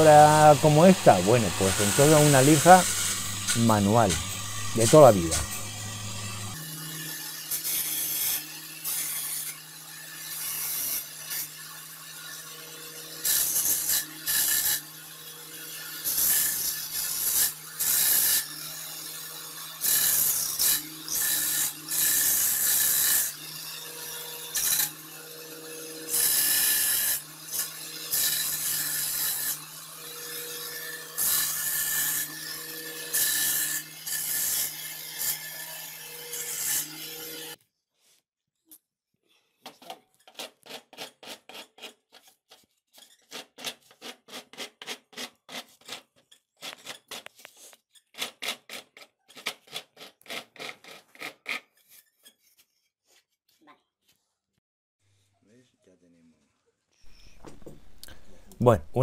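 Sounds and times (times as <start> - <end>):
belt sander motor hum: 0.0 - 6.6
wood rasping against sanding belt: 0.0 - 6.6.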